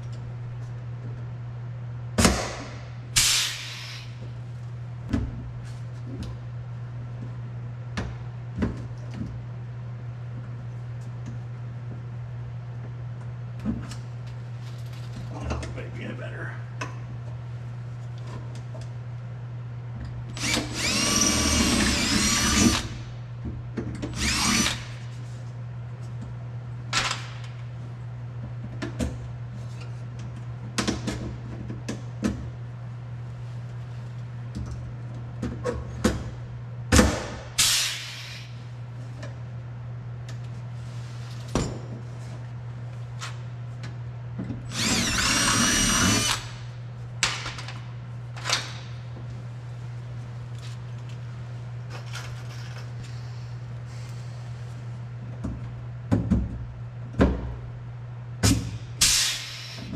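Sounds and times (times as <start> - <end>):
steady low hum: 0.0 - 59.9
power drill whining: 20.4 - 22.9, 44.7 - 46.6.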